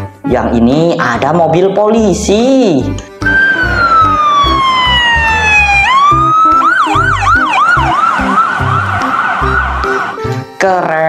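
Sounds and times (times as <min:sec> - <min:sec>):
background music with steady beat: 0:02.1 - 0:11.0
police siren wailing and yelping: 0:03.2 - 0:10.3.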